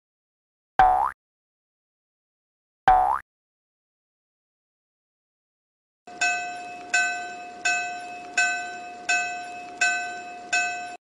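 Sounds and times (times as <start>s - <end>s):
level crossing warning bell: 6.1s - 11.0s.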